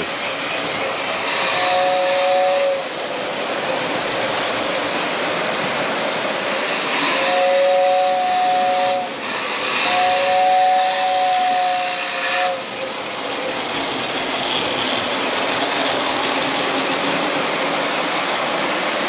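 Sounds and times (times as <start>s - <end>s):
model train running noise: 0.0s - 19.0s
model train whistle chord: 1.6s - 2.8s, 7.0s - 9.2s, 9.8s - 12.6s.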